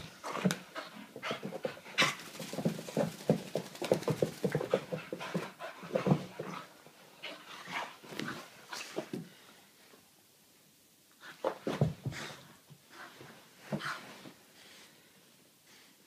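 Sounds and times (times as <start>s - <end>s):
puppy panting: 0.2s - 7.9s.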